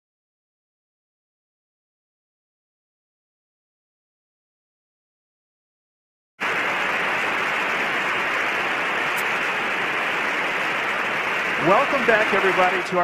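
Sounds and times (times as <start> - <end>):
radio-like hiss: 6.4 - 13.0.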